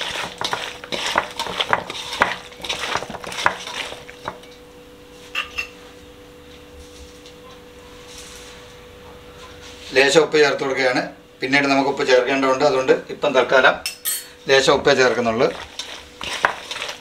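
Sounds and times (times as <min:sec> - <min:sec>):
spoon scraping in bowl: 0:00.0 - 0:04.5, 0:15.1 - 0:17.0
ringing clink: 0:13.9 - 0:14.3.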